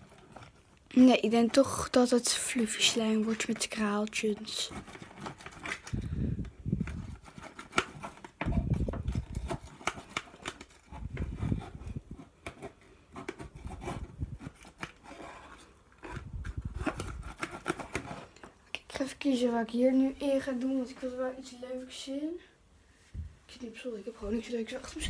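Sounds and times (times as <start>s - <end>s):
stick scraping plastic tub: 0.0s - 5.9s.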